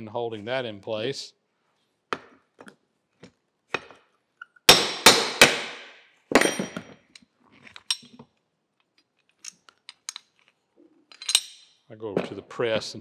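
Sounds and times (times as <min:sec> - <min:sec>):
hammer striking metal punch: 0:04.7 - 0:06.8.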